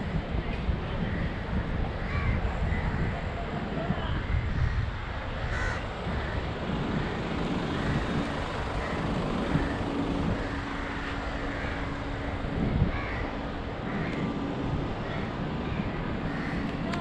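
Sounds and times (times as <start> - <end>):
low engine hum: 0.0 - 17.0
road traffic noise: 0.0 - 17.0
wind buffeting microphone: 0.0 - 17.0
crows cawing: 2.0 - 3.0, 5.5 - 14.3, 15.0 - 16.8.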